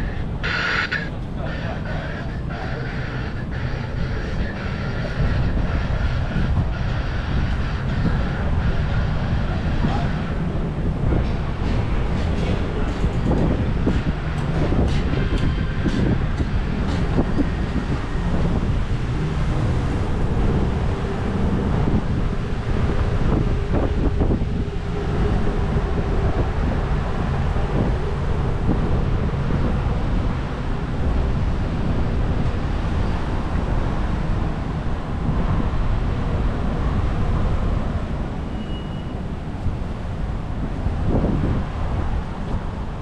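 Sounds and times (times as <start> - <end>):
traffic noise: 0.0 - 43.0
wind buffeting microphone: 0.0 - 43.0.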